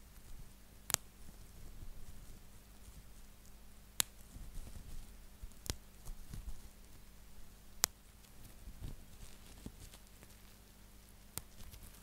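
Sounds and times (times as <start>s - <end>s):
plastic crinkling: 8.3s - 10.6s, 11.4s - 12.0s.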